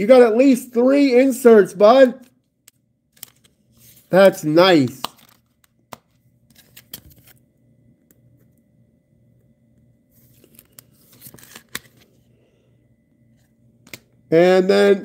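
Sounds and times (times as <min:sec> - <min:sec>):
cards rustling in plastic sleeves: 0:02.2 - 0:07.4, 0:10.1 - 0:12.3.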